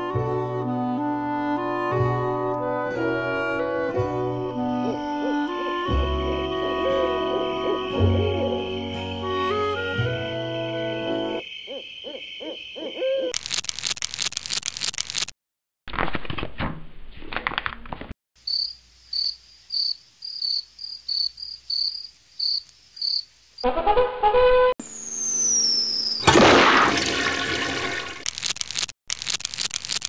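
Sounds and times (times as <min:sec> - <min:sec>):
high insect-like chirps: 0:18.4 - 0:23.6, 0:24.9 - 0:26.2
falling whistle: 0:24.8 - 0:26.3.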